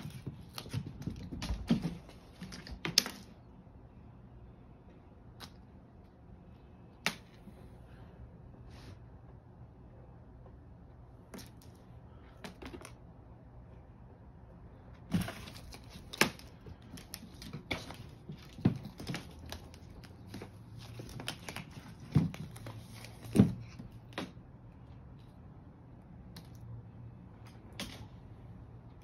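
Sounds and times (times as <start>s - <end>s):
cat scuffling: 0.0s - 3.4s, 15.0s - 24.4s.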